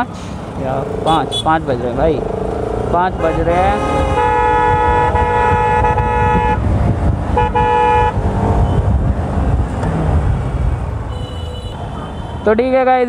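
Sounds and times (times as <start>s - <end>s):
low traffic rumble: 0.0s - 13.0s
vehicle horn honking: 1.1s - 1.6s, 3.1s - 6.6s, 7.4s - 8.8s, 11.1s - 12.5s.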